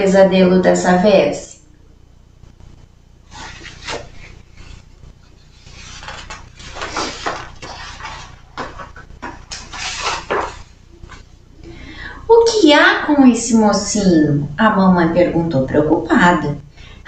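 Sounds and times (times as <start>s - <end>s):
book pages rustling: 3.3s - 11.3s.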